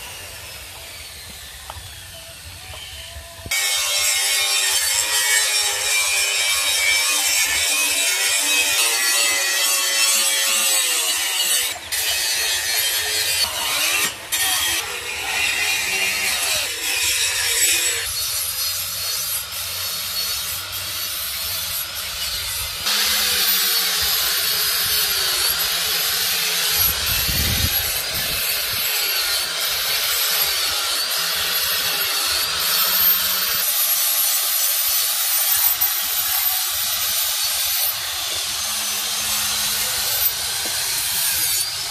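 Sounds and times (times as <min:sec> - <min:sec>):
angle grinder grinding metal: 0:00.0 - 0:41.9.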